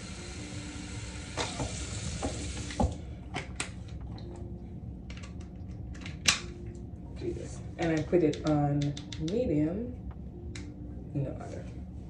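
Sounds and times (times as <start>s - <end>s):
tap water running into container: 0.0s - 3.0s.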